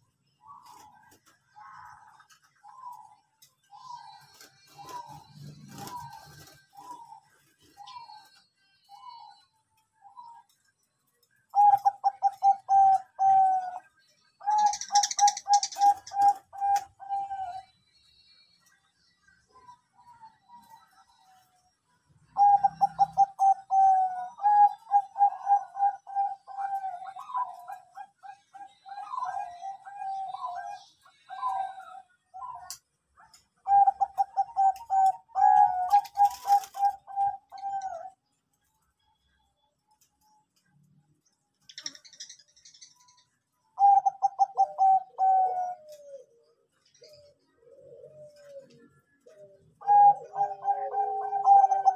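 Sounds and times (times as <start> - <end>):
dove cooing: 0.0 - 9.4, 11.5 - 17.7, 22.3 - 38.3, 43.8 - 51.9
high-pitched bird chatter: 0.0 - 51.9.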